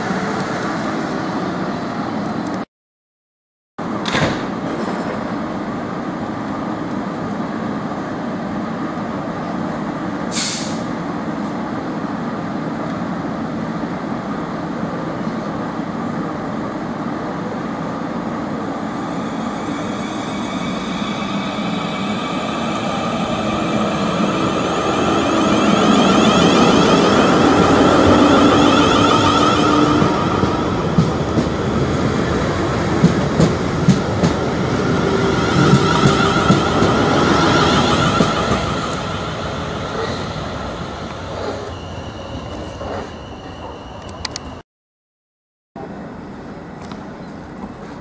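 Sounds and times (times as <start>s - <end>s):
sharp hiss of air: 10.3s - 11.0s
train mechanical hum: 40.0s - 44.6s, 45.8s - 48.0s.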